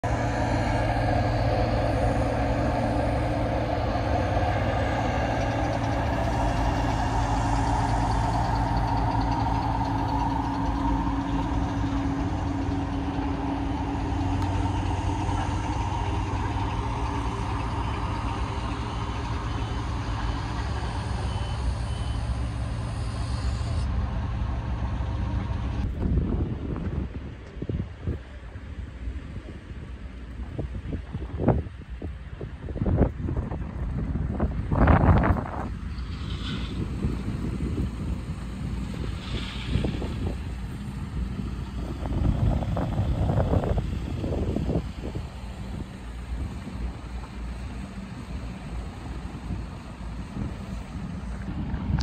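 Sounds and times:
heavy vehicle engine running: 0.0 - 52.0
faint reversing alarm beeps: 18.3 - 23.8.

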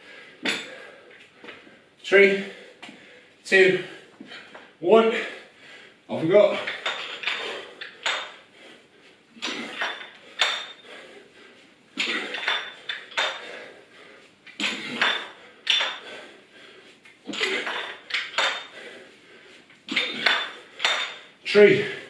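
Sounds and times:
metal dumbbells clinking: 0.4 - 0.9, 6.5 - 8.4, 9.4 - 11.0, 12.0 - 13.7, 14.5 - 16.2, 17.3 - 18.8, 19.9 - 22.0.

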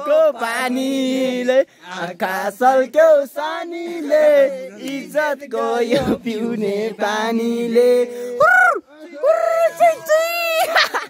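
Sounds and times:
man rapping in half-sung chant: 0.0 - 8.4.

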